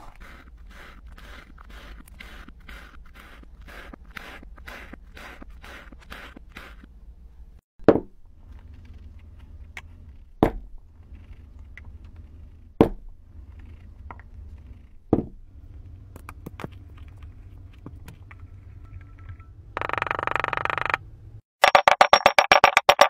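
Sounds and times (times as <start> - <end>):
low steady hum: 6.8 - 21.4.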